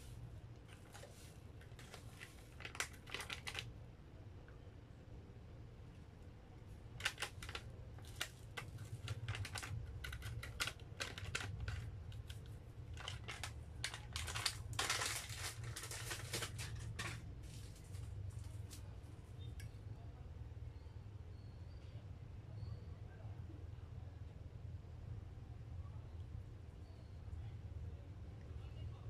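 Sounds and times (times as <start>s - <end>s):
plastic packaging crinkling: 0.6s - 3.7s, 6.9s - 18.8s.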